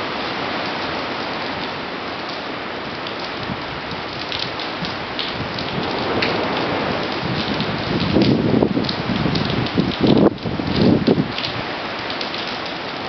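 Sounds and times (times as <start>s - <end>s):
gusting wind: 2.6s - 12.1s.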